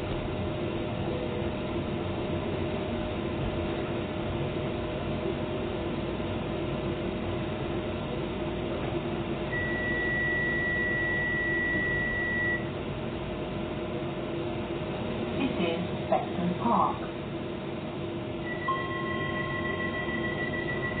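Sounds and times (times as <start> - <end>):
train electrical hum: 0.0 - 21.0
high steady beep: 9.5 - 12.7, 18.4 - 21.0.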